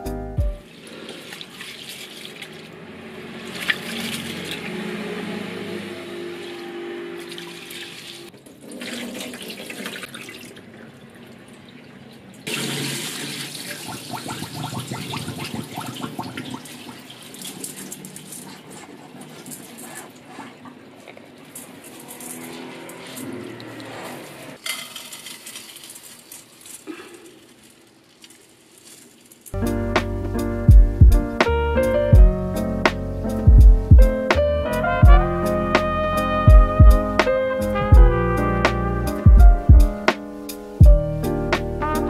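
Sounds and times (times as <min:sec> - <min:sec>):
water running in a sink: 0:00.6 - 0:04.8, 0:07.2 - 0:29.2
water sloshing in a pot: 0:00.6 - 0:05.4, 0:07.2 - 0:29.6.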